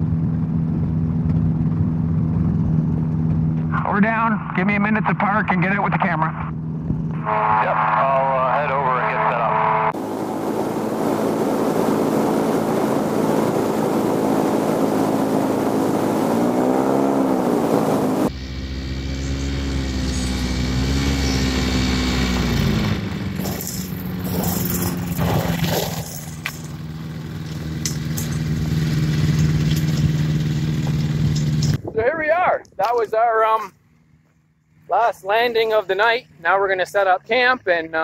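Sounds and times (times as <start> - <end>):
wind rumble on microphone: 0.0 - 3.8, 29.1 - 33.2
ultralight two-stroke engine: 0.0 - 4.2, 4.9 - 31.9.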